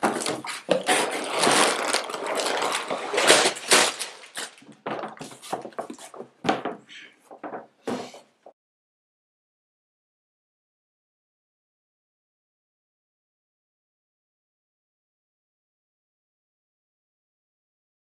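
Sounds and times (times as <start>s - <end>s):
plastic bags rustling: 0.0s - 6.3s.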